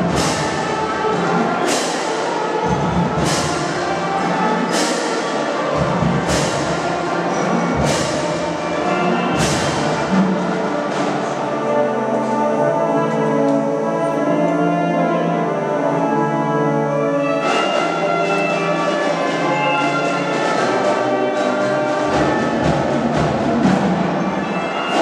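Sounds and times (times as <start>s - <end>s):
drum and cymbal crashes: 0.0s - 4.0s, 4.6s - 11.1s.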